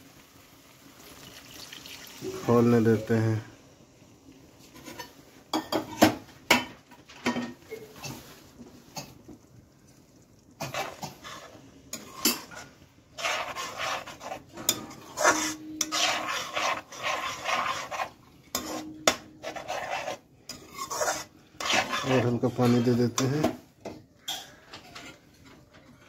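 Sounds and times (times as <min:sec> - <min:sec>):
metal spoon scraping a pot: 0:10.6 - 0:23.5, 0:24.2 - 0:26.0.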